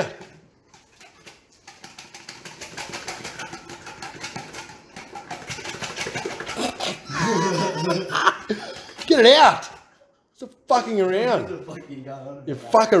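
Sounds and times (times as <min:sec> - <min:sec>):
container rattling when shaken: 0:00.0 - 0:08.0.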